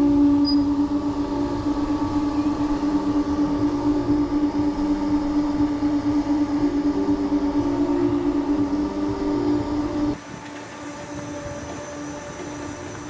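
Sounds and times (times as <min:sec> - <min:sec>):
low rumble: 0:00.0 - 0:10.2
mechanical hum of ride machinery: 0:00.0 - 0:13.0.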